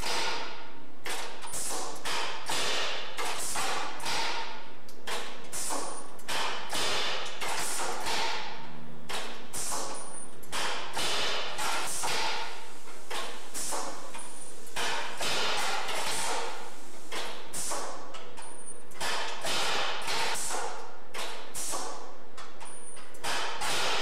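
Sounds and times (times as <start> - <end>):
steady background noise: 0.0 - 24.0.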